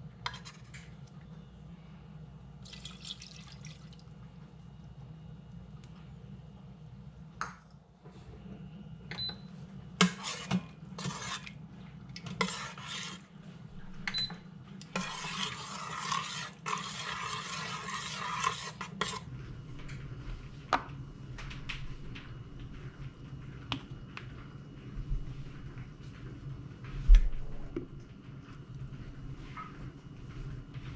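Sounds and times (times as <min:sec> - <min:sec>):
metal spoon scraping a pot: 0:10.0 - 0:11.6, 0:12.2 - 0:13.3, 0:14.8 - 0:19.3.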